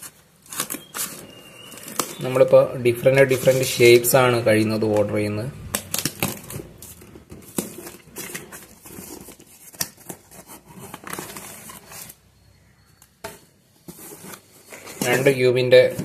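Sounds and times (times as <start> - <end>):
cardboard parcel tearing: 0.0 - 2.5, 5.8 - 12.2.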